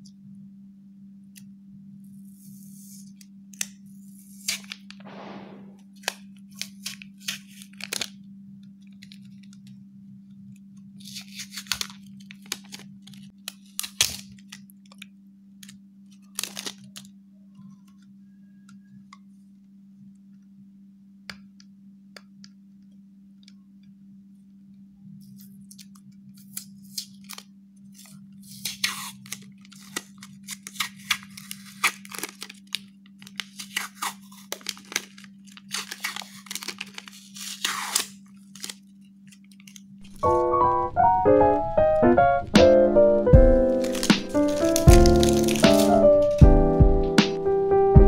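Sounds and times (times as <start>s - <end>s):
sticker label peeling crackle: 16.1s - 17.0s, 25.4s - 40.4s, 43.7s - 46.4s.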